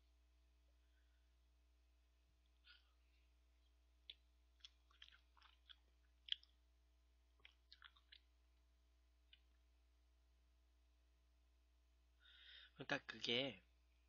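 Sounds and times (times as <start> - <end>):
mouth smacks: 4.0 - 6.6, 7.4 - 8.3.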